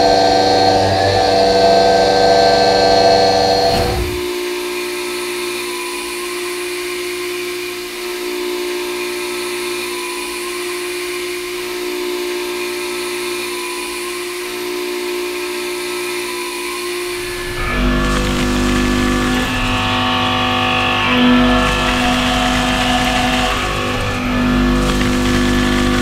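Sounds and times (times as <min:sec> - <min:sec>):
milling cutter whining: 0:00.1 - 0:04.3, 0:17.1 - 0:26.0.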